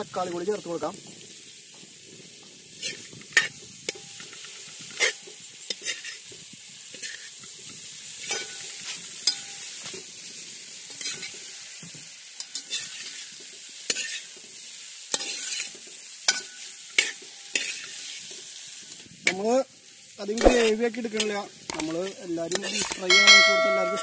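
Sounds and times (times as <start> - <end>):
meat sizzling in a pot: 0.0 - 24.0
metal ladle scraping a pot: 22.5 - 24.0.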